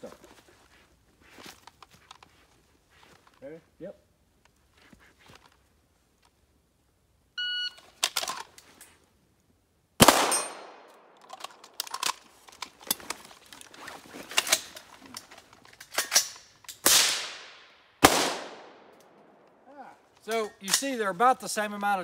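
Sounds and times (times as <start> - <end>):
gun handling clicks and knocks: 1.4 - 2.4, 7.8 - 9.0, 10.1 - 16.9, 18.9 - 21.0
shot timer beep: 7.4 - 7.8
pistol shots echoing: 10.0 - 11.1, 16.8 - 19.0
rifle shots on steel: 10.0 - 11.1, 16.0 - 18.9.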